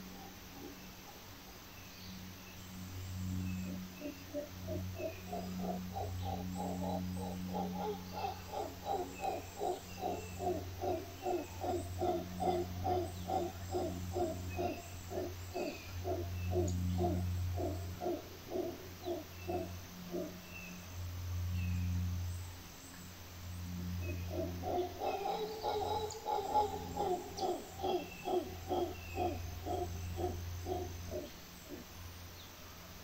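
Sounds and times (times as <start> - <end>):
faint insect chirps: 0.0 - 33.0
steady low hum: 0.0 - 33.0
howler monkeys grunting: 3.4 - 20.7, 23.7 - 32.1.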